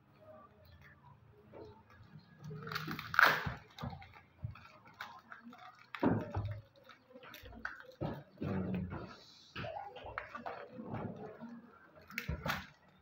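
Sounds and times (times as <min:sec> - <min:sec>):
paper wrapper crinkling: 0:02.4 - 0:08.0.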